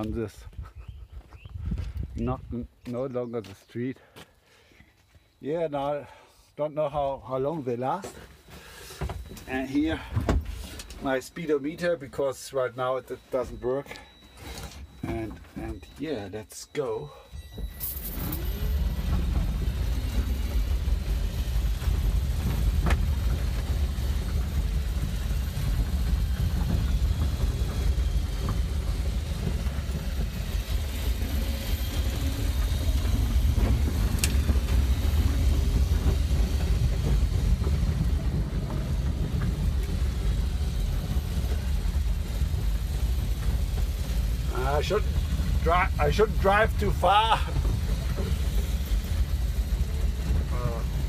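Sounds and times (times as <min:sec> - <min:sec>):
low rumble of tyres: 0:17.1 - 0:51.0.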